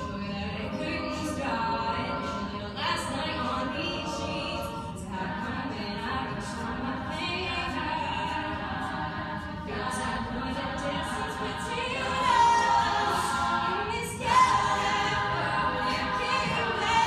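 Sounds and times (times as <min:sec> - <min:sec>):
women singing in harmony: 0:00.0 - 0:17.0.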